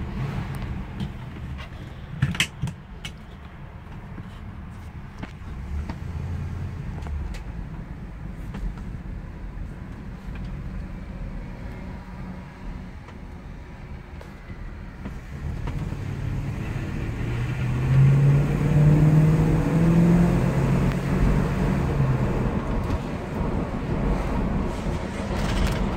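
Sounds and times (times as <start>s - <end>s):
car engine revving: 15.1s - 25.9s.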